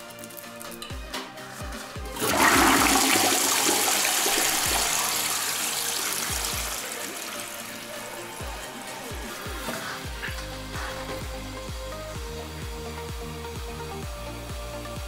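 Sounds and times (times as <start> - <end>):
toilet flushing: 2.0 - 11.0
electronic music beat: 3.6 - 15.0.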